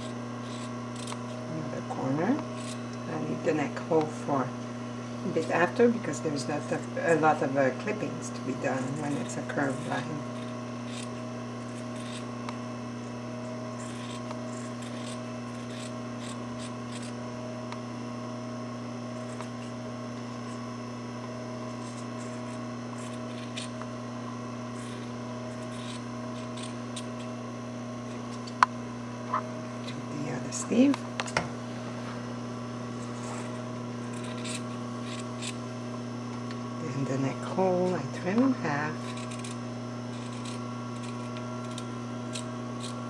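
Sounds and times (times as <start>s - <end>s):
scissors snipping fabric: 0.0s - 1.4s, 6.6s - 12.6s, 13.8s - 17.2s, 21.7s - 23.9s, 24.7s - 27.4s, 33.0s - 35.6s, 37.9s - 43.0s
steady low hum: 0.0s - 43.0s.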